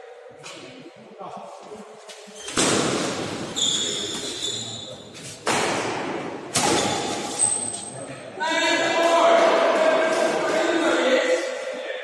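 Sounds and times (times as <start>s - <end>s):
high squeal: 3.5s - 5.2s.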